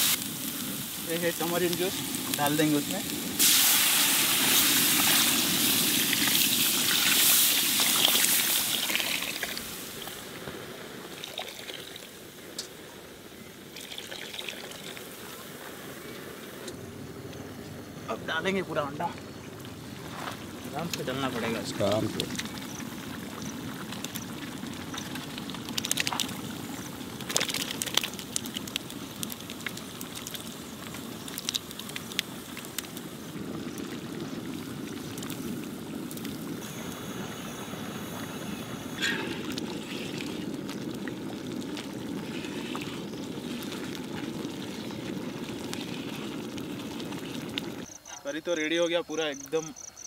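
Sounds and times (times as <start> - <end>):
gas burner rushing: 0.0 - 10.5, 32.7 - 47.9
thick gravy bubbling: 0.0 - 48.0.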